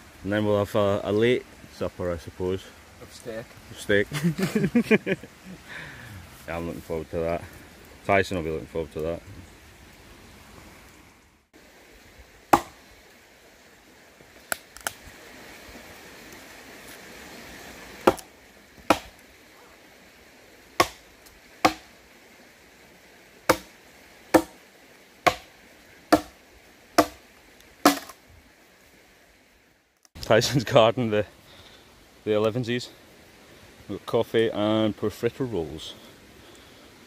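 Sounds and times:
hatchet chopping branch: 0:12.5 - 0:12.8, 0:18.0 - 0:19.2, 0:20.8 - 0:21.9, 0:23.5 - 0:24.6, 0:25.2 - 0:26.4, 0:27.0 - 0:27.2, 0:27.8 - 0:28.2.

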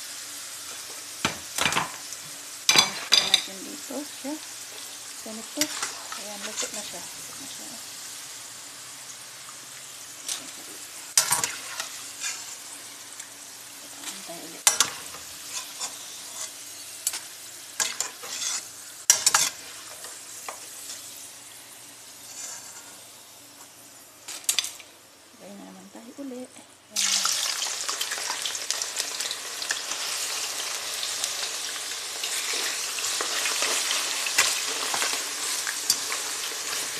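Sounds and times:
potato slices sizzling in oil: 0:00.0 - 0:36.9
metal spoon clinking and scraping: 0:17.8 - 0:19.6, 0:35.8 - 0:36.9.

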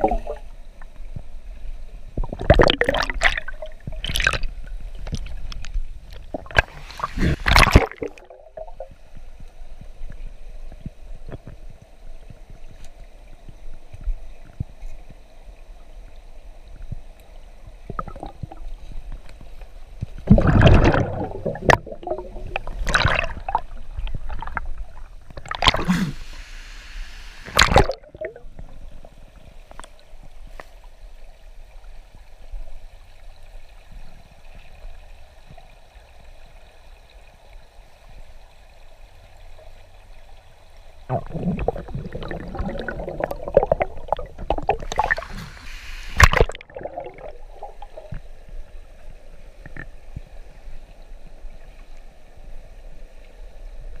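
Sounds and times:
muffled underwater sloshing: 0:17.7 - 0:26.4, 0:41.0 - 0:52.2.

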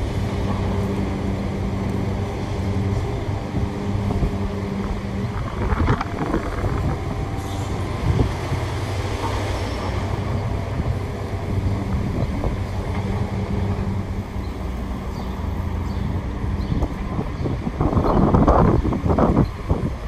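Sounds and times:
excavator diesel engines running: 0:00.0 - 0:20.0.

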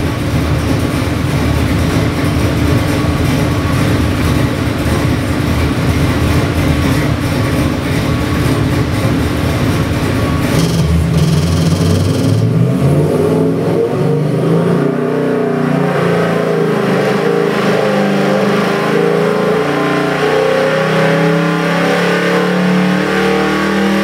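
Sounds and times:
choppy engine idling: 0:00.0 - 0:12.7.

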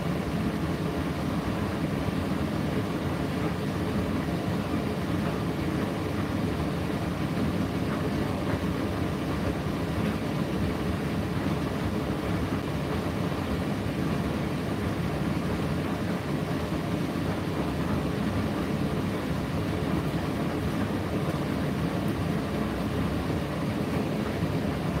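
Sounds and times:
tumble dryer running: 0:00.0 - 0:25.0.

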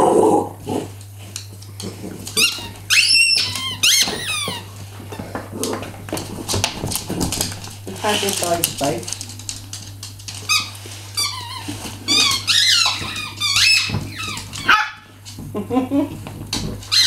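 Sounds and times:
squeaky toys squeaking: 0:02.4 - 0:04.7, 0:10.5 - 0:14.8.

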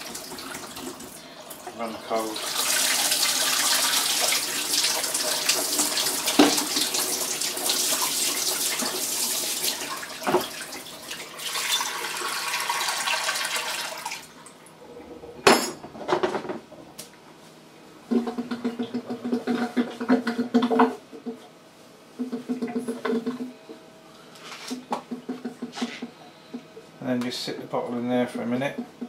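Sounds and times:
tap water running into sink: 0:00.0 - 0:14.2, 0:18.1 - 0:20.8.

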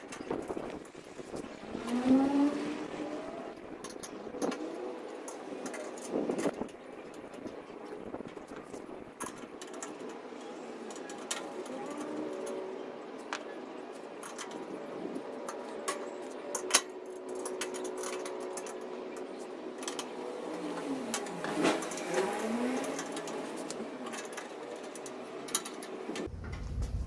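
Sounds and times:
steady mechanical hum: 0:00.0 - 0:27.0
sharp metal clicks and knocks: 0:15.4 - 0:20.2, 0:20.8 - 0:26.7.

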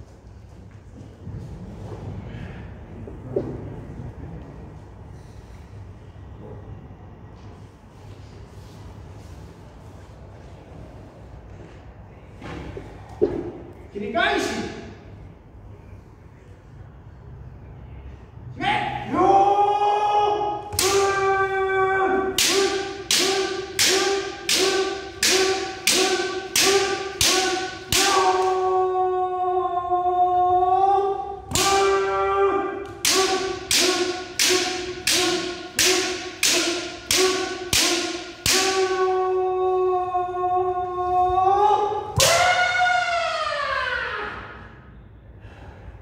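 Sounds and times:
people shouting: 0:18.6 - 0:44.9.

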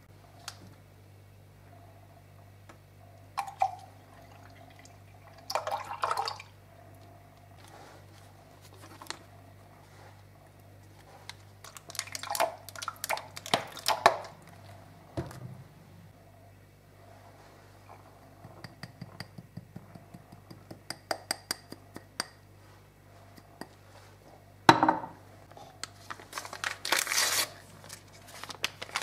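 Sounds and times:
milk pouring and splashing: 0:03.4 - 0:06.5, 0:11.6 - 0:14.8.

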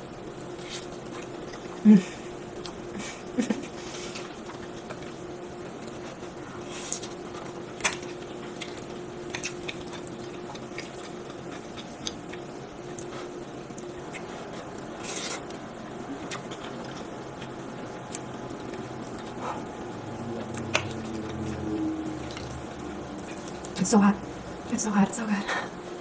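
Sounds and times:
faint steady hum: 0:00.0 - 0:26.0
chewing sounds: 0:04.0 - 0:23.8.

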